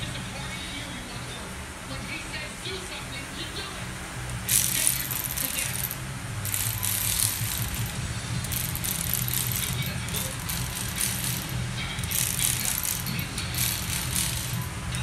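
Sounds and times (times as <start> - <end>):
hand ratchet clicking: 4.5 - 15.0.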